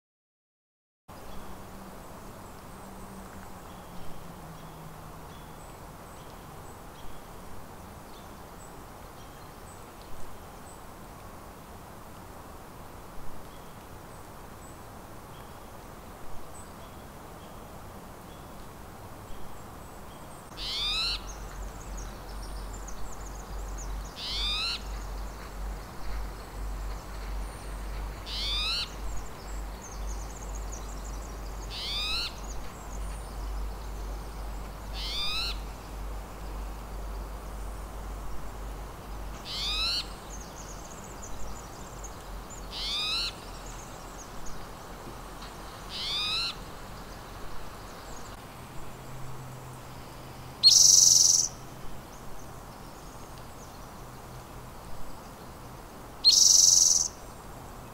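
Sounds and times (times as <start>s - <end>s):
bird calling: 20.6s - 21.3s, 24.2s - 25.0s, 28.3s - 29.0s, 31.7s - 32.4s, 35.0s - 35.7s, 39.5s - 40.2s, 42.7s - 43.4s, 45.9s - 46.6s, 56.2s - 57.1s.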